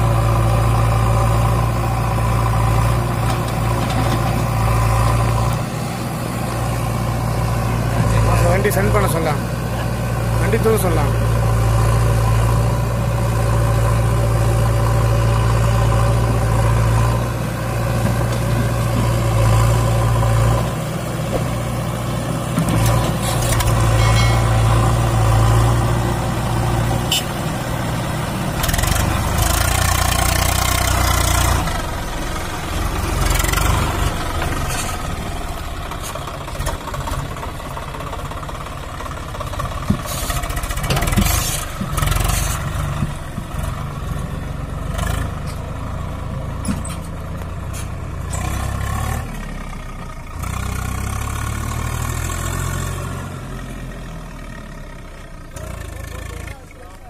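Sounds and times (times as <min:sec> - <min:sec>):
diesel engines at low revs: 0:00.0 - 0:57.0.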